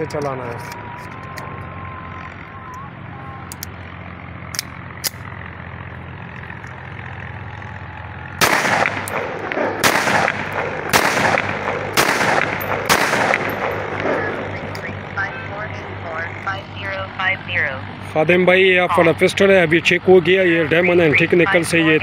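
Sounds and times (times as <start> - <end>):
pistol shots: 8.4 - 14.2.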